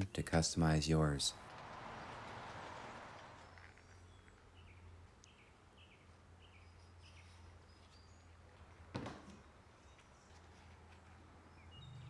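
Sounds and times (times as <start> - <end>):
bird chirping: 1.9 - 8.4, 11.4 - 12.0.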